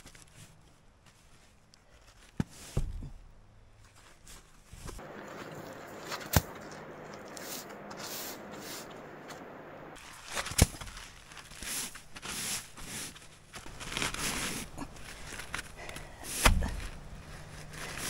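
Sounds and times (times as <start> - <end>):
rustling: 0.0 - 18.0
camping gear scraping: 3.8 - 18.0
footsteps: 4.8 - 10.0.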